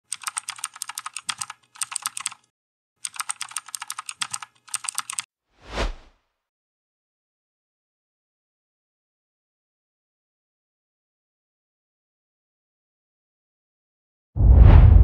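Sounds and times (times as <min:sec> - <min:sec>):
keyboard key clicks: 0:00.1 - 0:02.4, 0:03.1 - 0:05.3
whoosh: 0:14.4 - 0:15.0.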